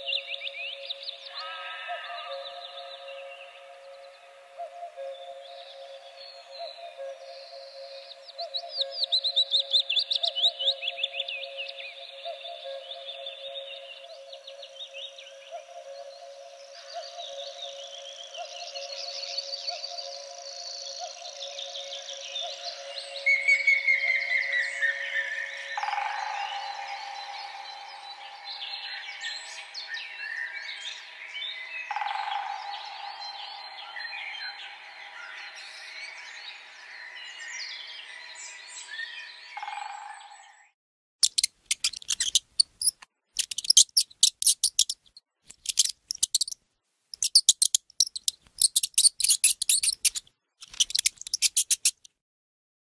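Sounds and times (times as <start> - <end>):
chorus of animal chirps: 0.0 - 37.7, 41.2 - 46.6, 47.2 - 52.1
high-pitched chittering: 41.2 - 46.6, 47.2 - 52.0.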